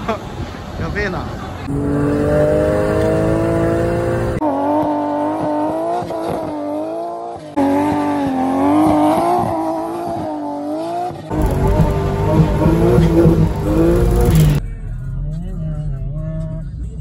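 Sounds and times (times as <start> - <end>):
car engine revving hard: 1.7 - 14.6.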